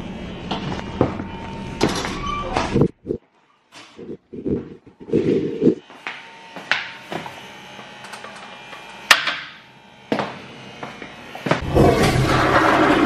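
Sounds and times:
toilet flushing: 0:11.6 - 0:13.0.

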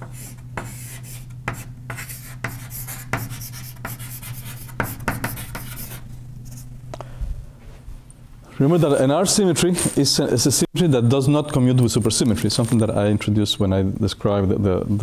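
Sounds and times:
writing strokes on a board: 0:00.0 - 0:06.7
steady low hum: 0:00.0 - 0:15.0.

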